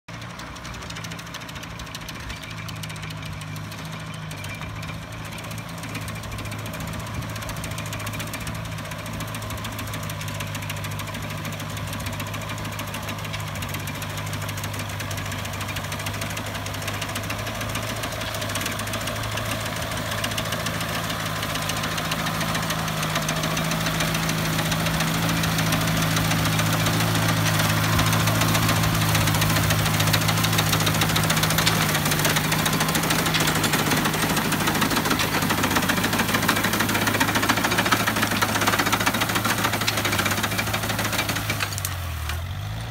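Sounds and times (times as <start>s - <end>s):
tractor engine running: 0.1s - 42.9s
reaper mechanism rattling: 15.7s - 42.4s.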